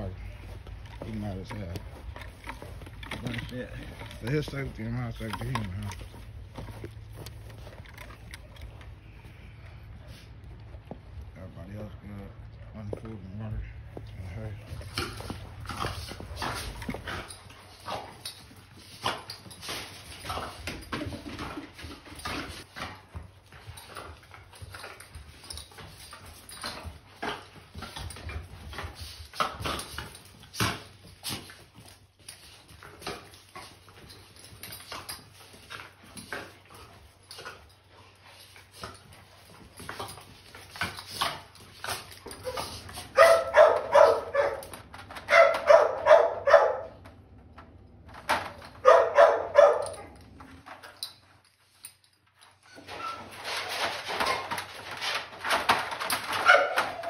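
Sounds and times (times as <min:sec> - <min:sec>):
dogs scuffling with claws clicking: 0:00.0 - 0:12.0, 0:13.9 - 0:57.0
high-pitched dog barking: 0:43.1 - 0:44.7, 0:45.3 - 0:47.0, 0:48.8 - 0:50.1, 0:56.4 - 0:57.0.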